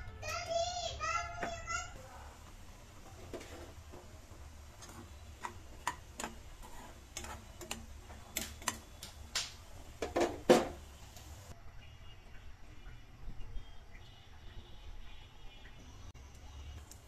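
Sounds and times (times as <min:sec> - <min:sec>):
spatula tapping in pan: 0:03.3 - 0:10.8.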